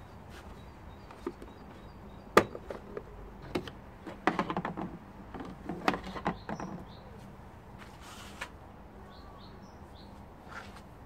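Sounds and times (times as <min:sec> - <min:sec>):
plastic clicks and rattles: 0:02.4 - 0:06.9.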